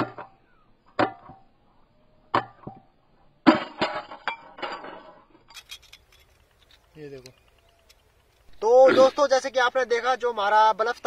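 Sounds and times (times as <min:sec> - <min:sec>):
glass cracking and tinkling: 0:04.1 - 0:06.8.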